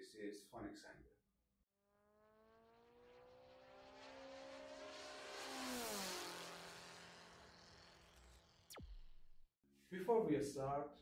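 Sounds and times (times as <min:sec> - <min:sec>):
engine passing by whine: 0:01.9 - 0:09.4.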